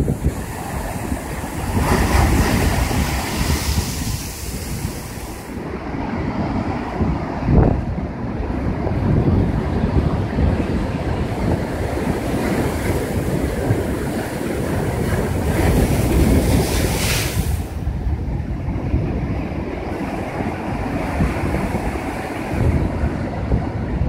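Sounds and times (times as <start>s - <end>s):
surf crashing against rocks: 0.0s - 7.8s, 8.5s - 18.4s, 19.4s - 24.0s
wind rumbling on microphone: 0.0s - 24.0s.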